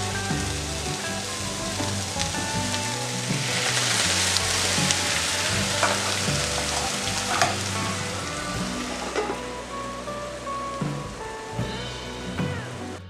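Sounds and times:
liquid sizzling in hot pan: 1.6s - 9.4s.

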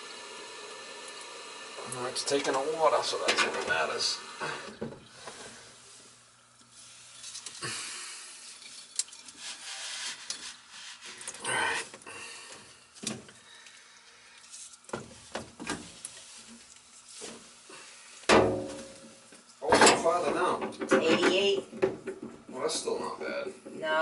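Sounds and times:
hose scraping in metal pipe: 9.2s - 11.4s
rag wiping: 9.4s - 11.3s.

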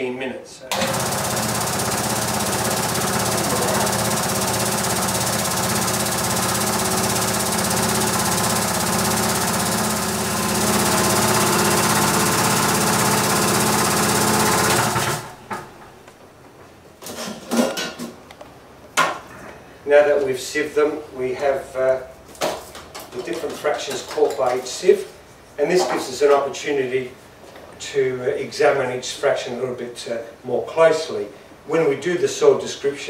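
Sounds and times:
sieve shaker rattling and humming: 1.0s - 15.4s.

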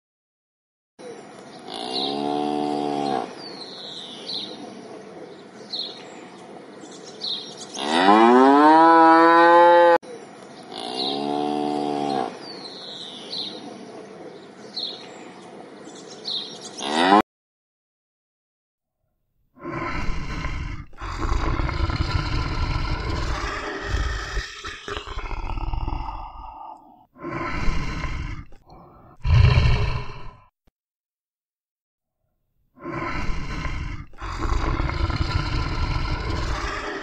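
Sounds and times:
cows mooing: 1.7s - 3.4s, 7.8s - 10.0s.

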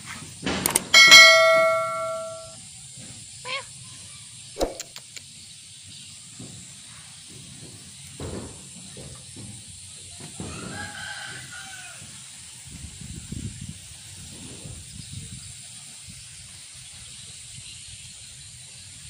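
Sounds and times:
rooster crowing: 10.4s - 12.1s.

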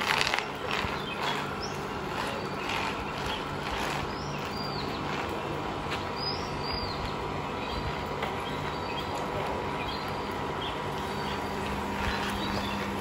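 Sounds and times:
bicycle rolling noise: 0.0s - 13.0s
bird chirps: 6.2s - 9.2s.

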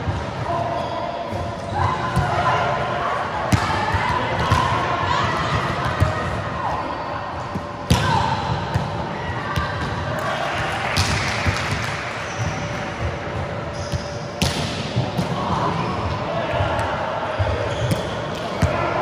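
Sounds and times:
volleyball smacks echoing: 10.9s - 12.0s.

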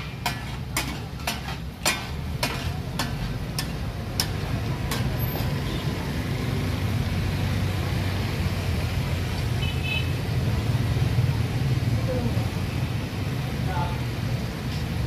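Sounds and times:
metal spatula tap: 0.0s - 5.1s
food sizzling on griddle: 0.0s - 6.4s
road traffic rumble: 0.0s - 15.0s.

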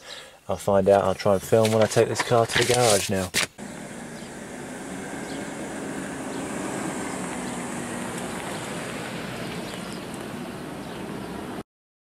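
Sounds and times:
car driving off: 3.6s - 11.6s.

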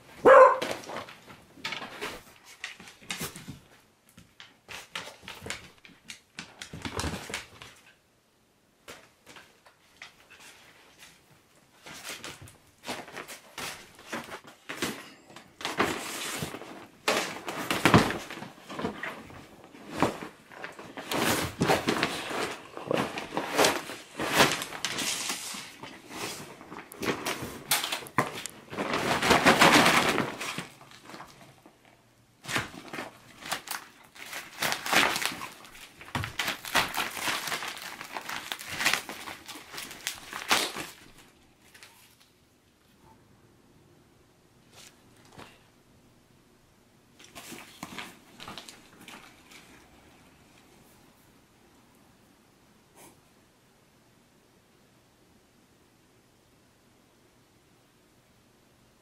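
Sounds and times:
inflatable plastic crinkling: 15.6s - 31.8s, 32.4s - 41.9s
plastic ripping snaps: 32.4s - 42.3s.

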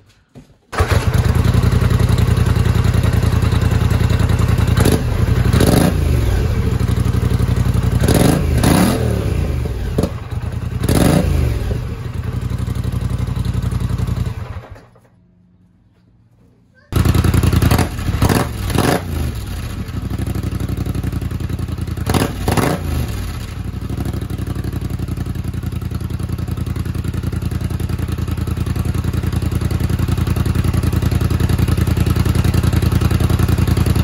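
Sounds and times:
engine idling and revving: 0.8s - 15.1s, 17.0s - 34.0s.

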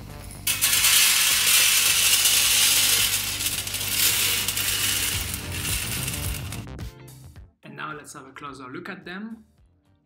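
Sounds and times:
coffee beans clattering on a tray: 0.4s - 6.6s.

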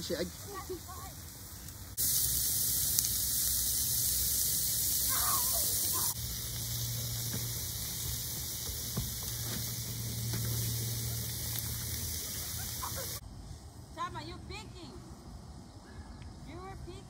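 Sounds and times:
food sizzling on a grill: 0.0s - 13.2s.

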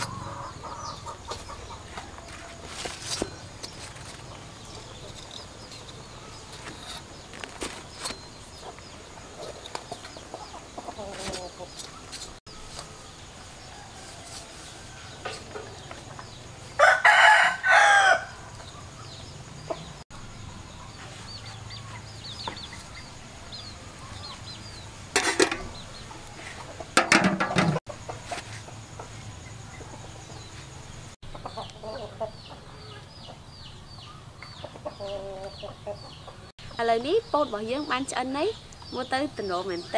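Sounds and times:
chickens clucking softly: 8.6s - 12.9s, 31.2s - 33.4s, 34.4s - 36.5s
rooster crowing: 16.7s - 18.6s.

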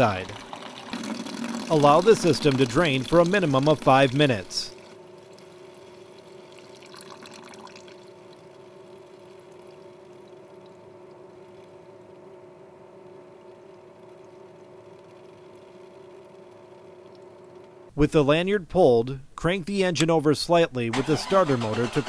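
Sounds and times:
water trickling from a drain: 0.0s - 11.8s.

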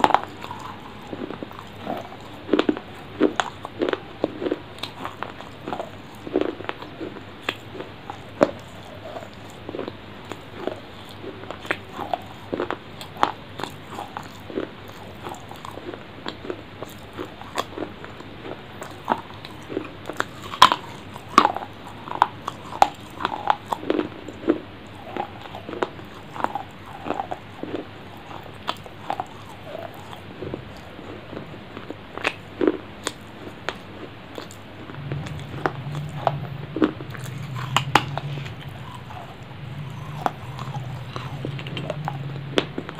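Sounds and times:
person chewing with mouth clicks: 0.0s - 42.9s
lip smacks: 33.0s - 42.9s
low hum: 34.2s - 42.9s.

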